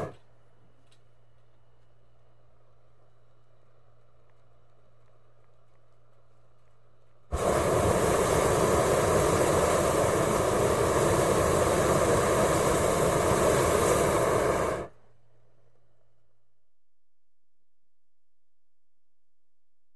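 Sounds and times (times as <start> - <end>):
propane burner blast: 0.0 - 0.3, 7.3 - 15.0
pilot light hiss and hum: 0.0 - 19.7.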